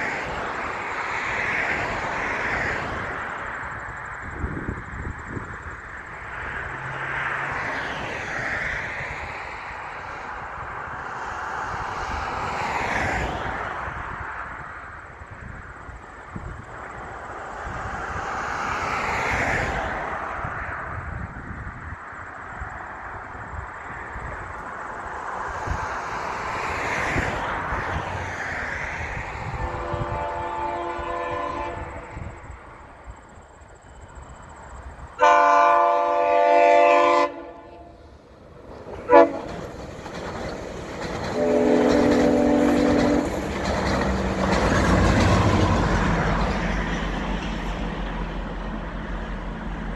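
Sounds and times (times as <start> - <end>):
train rumble: 0.0 - 49.9
diesel locomotive horn: 29.4 - 32.5, 35.2 - 38.1, 39.0 - 39.6, 41.3 - 43.4.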